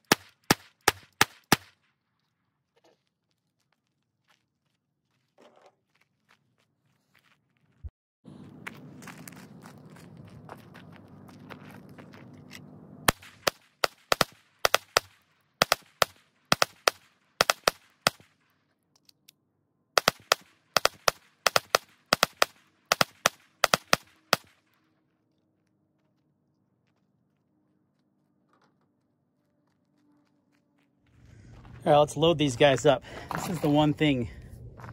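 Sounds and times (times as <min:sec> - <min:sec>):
pistol shots: 0:00.0 - 0:01.8, 0:13.1 - 0:18.3, 0:20.0 - 0:24.5.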